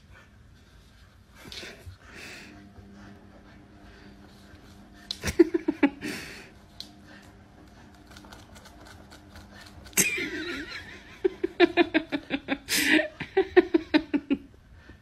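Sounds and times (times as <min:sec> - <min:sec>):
person laughing in rhythmic bursts: 0:05.1 - 0:06.5, 0:10.0 - 0:14.6.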